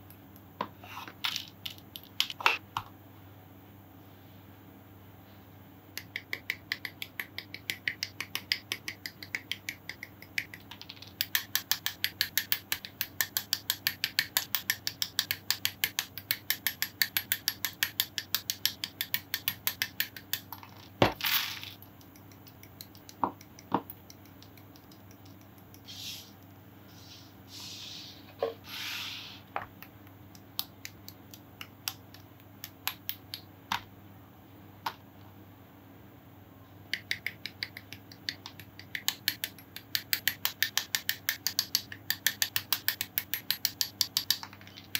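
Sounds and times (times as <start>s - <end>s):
plastic model parts clicking: 37.0s - 44.9s.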